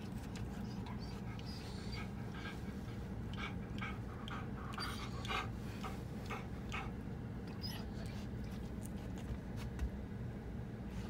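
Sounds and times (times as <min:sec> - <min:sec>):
dog panting rapidly: 0:00.0 - 0:07.0
steady low hum: 0:00.0 - 0:11.0.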